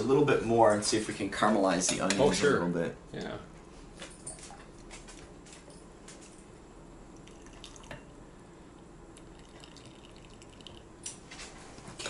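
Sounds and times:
water trickling and dripping: 0:07.2 - 0:08.1, 0:09.2 - 0:10.9.

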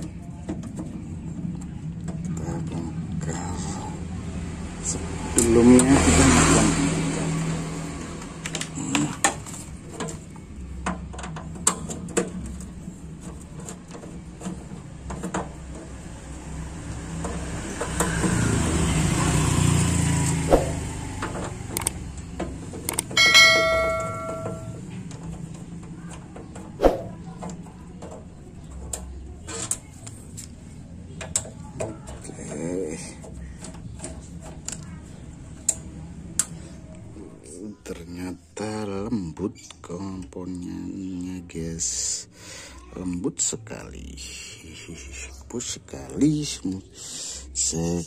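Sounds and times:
traffic rumbling past: 0:00.0 - 0:38.2
steady ringing tone: 0:23.2 - 0:24.8.

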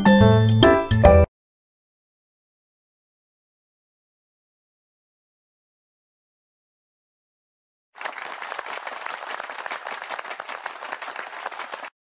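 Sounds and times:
crowd applause: 0:08.0 - 0:12.0.

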